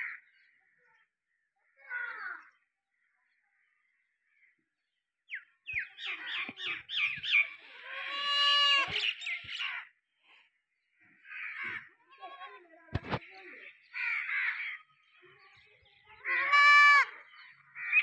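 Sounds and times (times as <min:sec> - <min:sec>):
goat kid bleating: 0:07.5 - 0:09.0, 0:12.0 - 0:12.7, 0:16.2 - 0:17.2.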